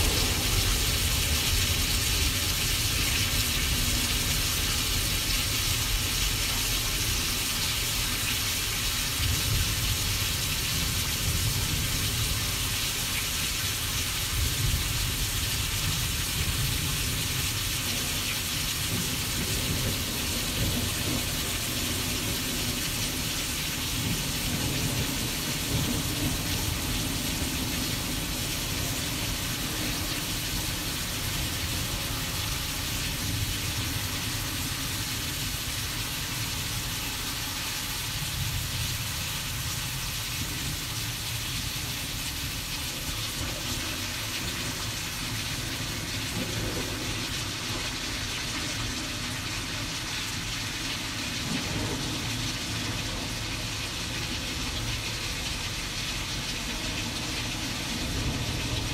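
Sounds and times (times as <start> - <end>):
low thunder rumble: 0.0 - 5.2
rain-like hiss: 0.0 - 58.9.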